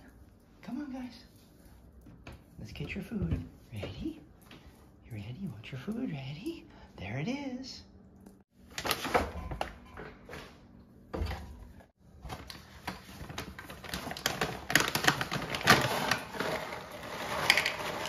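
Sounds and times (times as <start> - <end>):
plastic bag crinkling: 12.4 - 18.0.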